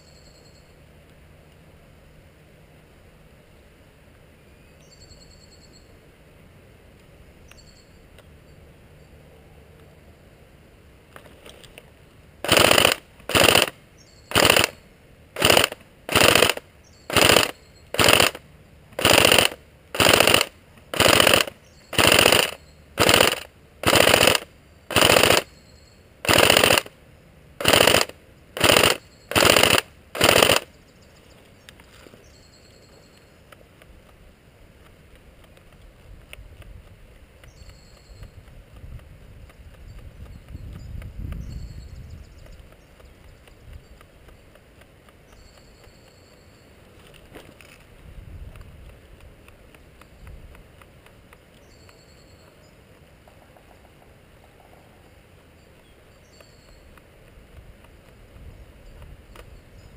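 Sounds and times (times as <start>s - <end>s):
faint birdsong: 0.0s - 12.3s, 13.8s - 15.6s, 16.6s - 18.9s, 20.6s - 23.2s, 24.0s - 27.6s, 28.2s - 34.4s, 36.8s - 48.0s, 49.1s - 59.9s
airsoft gun full-auto bursts: 12.4s - 14.8s, 15.4s - 18.4s, 19.0s - 25.5s, 26.2s - 27.0s, 27.6s - 30.7s.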